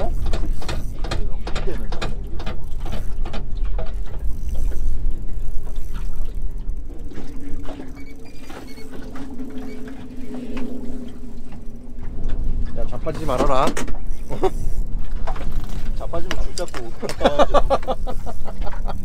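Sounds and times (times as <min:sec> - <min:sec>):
scattered clicks and knocks: 0:00.0 - 0:06.4, 0:11.5 - 0:19.0
spinning reel cranking: 0:00.0 - 0:19.0
steady low hum: 0:00.0 - 0:19.0
wind and water rumble: 0:00.0 - 0:19.0.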